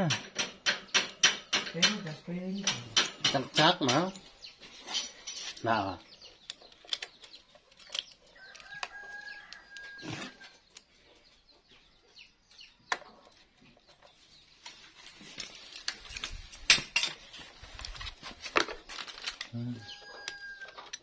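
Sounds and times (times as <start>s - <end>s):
screwdriver and metal parts clinking: 2.6s - 10.4s, 15.2s - 21.0s
rooster crowing: 8.4s - 10.4s, 19.6s - 20.9s.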